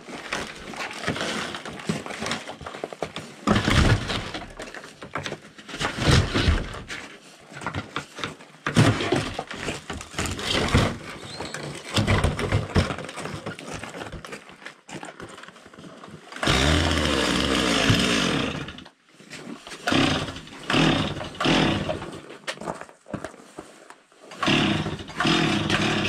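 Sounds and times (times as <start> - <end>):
chainsaw cutting wood: 0.3 - 7.0, 8.7 - 14.2, 16.3 - 19.0, 19.7 - 22.3, 24.3 - 26.0.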